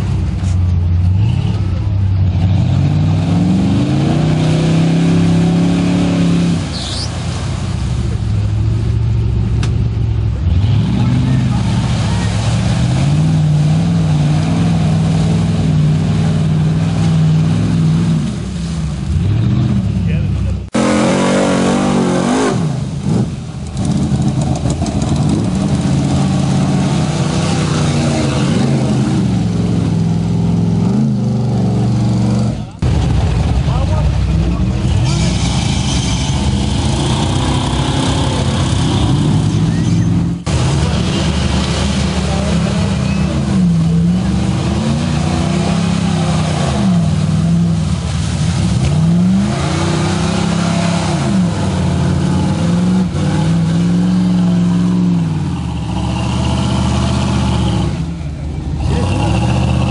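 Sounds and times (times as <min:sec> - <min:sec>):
pickup engine revving: 0:00.0 - 0:59.9
tires churning through mud: 0:00.0 - 0:59.9.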